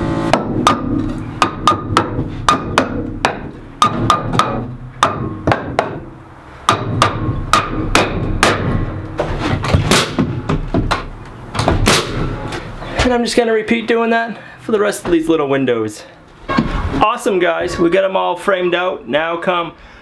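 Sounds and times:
hammer striking nails into wood: 0.3s - 6.1s, 6.7s - 9.0s, 9.7s - 12.2s.

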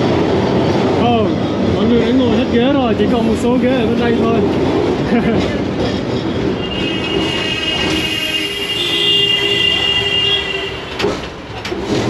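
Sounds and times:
tram running noise: 0.0s - 12.0s
tram wheels squealing on rails: 5.4s - 12.0s.

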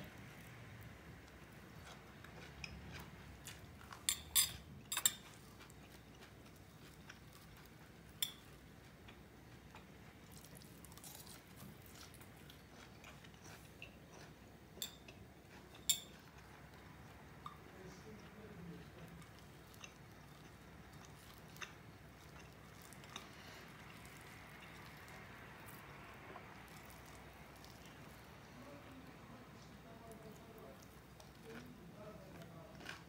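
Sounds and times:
quiet chewing: 0.0s - 33.0s
fork clinking on ceramic plate: 4.0s - 5.3s, 8.2s - 8.5s, 14.8s - 16.2s.

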